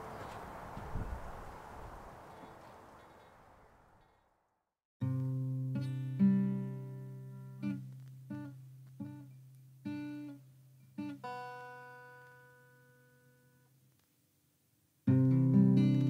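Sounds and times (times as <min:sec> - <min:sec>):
acoustic guitar plucking: 0:05.0 - 0:13.5, 0:15.1 - 0:16.0.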